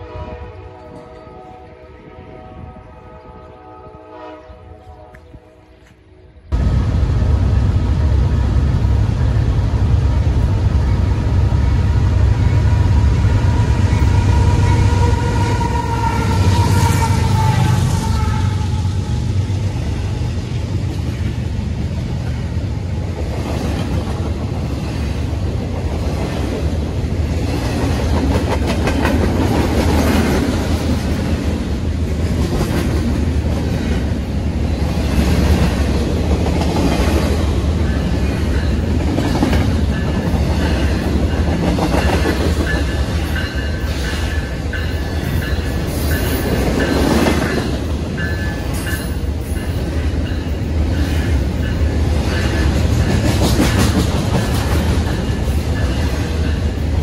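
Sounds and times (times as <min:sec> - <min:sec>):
diesel locomotive rumble: 0:06.5 - 0:57.0
train wheels clickety-clack: 0:23.1 - 0:34.2, 0:34.8 - 0:57.0.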